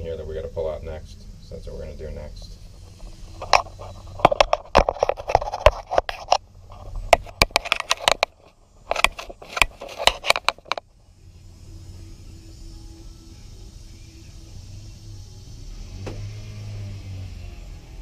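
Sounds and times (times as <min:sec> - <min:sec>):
tools and parts clattering: 0:02.7 - 0:10.8.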